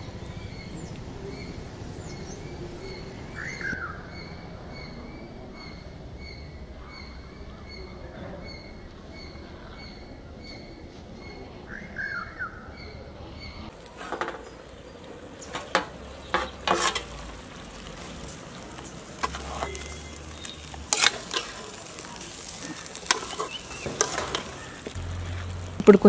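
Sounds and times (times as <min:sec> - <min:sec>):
steady sizzle: 0:13.7 - 0:26.0
metal skimmer scraping pot: 0:13.8 - 0:25.0.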